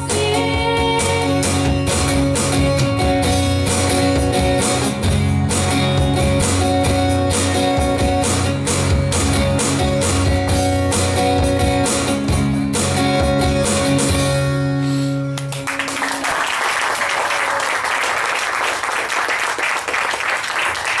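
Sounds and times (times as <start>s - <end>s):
live band playing chords: 0.0s - 16.3s
audience applause: 15.4s - 21.0s.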